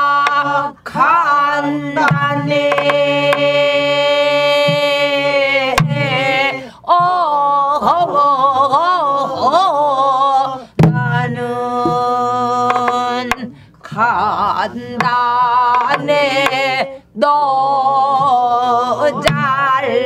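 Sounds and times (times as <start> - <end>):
folk singers with vibrato: 0.0 - 20.0
barrel drum strokes: 2.0 - 3.6, 5.7 - 7.2, 10.8 - 13.5, 15.0 - 16.8.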